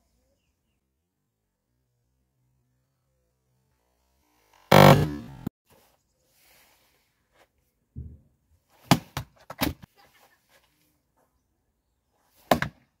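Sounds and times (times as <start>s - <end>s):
axe striking a log: 4.7s - 5.4s, 12.4s - 12.9s.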